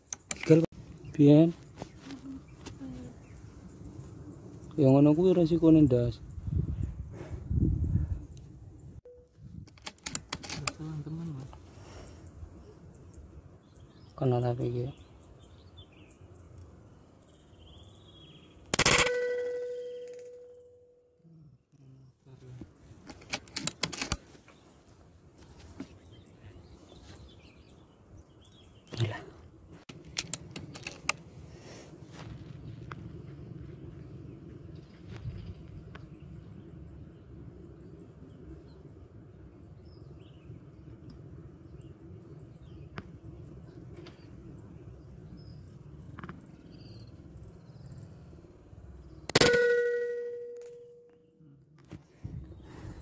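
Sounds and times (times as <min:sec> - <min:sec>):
sharp clicks and clatter: 0:00.0 - 0:00.7, 0:09.6 - 0:10.8, 0:23.0 - 0:24.2, 0:29.9 - 0:31.2
air rifle shot: 0:18.7 - 0:20.3, 0:49.3 - 0:50.6.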